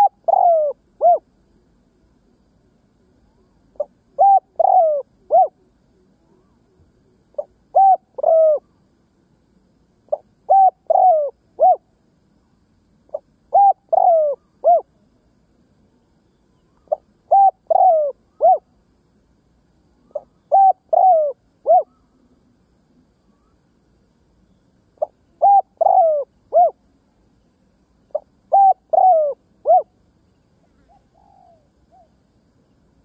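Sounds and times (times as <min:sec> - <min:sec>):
dove cooing: 0:00.0 - 0:01.2, 0:03.7 - 0:08.7, 0:10.1 - 0:11.9, 0:13.1 - 0:15.0, 0:16.8 - 0:18.7, 0:20.0 - 0:22.2, 0:25.0 - 0:26.8, 0:28.1 - 0:29.9, 0:30.6 - 0:32.1.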